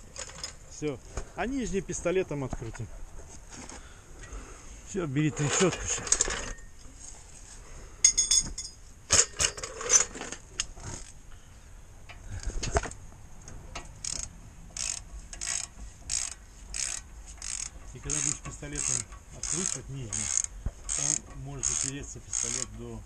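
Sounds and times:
tools clanking and knocking: 0.0s - 0.9s, 5.2s - 6.7s, 8.0s - 11.1s, 12.1s - 22.8s
ratchet wrench clicking: 13.8s - 22.8s.

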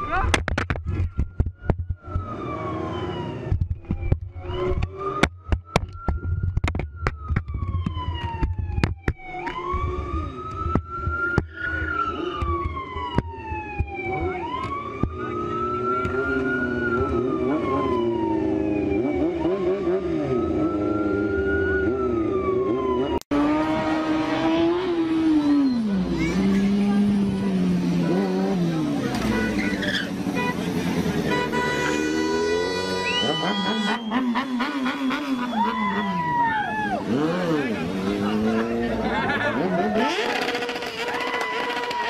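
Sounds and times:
police siren wailing: 0.9s - 30.1s, 31.9s - 42.0s
motorcycle engine: 9.5s - 42.0s.

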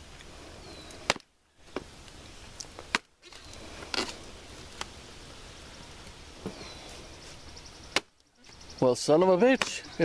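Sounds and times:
hatchet chopping firewood: 1.0s - 1.9s, 7.9s - 8.2s.

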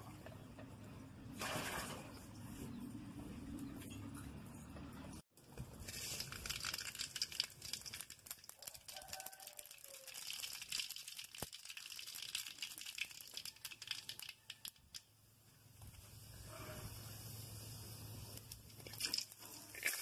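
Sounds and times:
seeds popping in hot oil: 5.5s - 15.2s, 18.4s - 20.0s.

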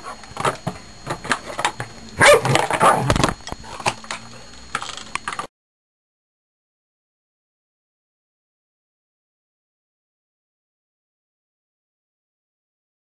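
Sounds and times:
dog growling and barking: 2.2s - 3.3s.

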